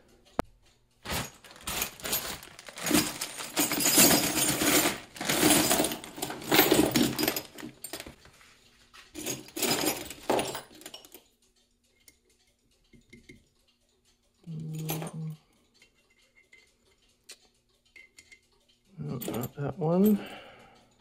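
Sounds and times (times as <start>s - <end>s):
steel rods clattering: 1.0s - 8.2s.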